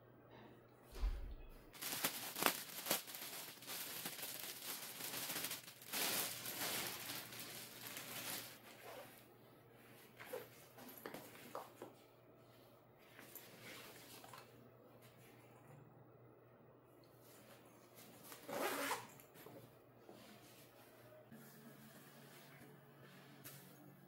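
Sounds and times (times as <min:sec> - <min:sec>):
plastic packaging crinkling: 0:01.7 - 0:09.2.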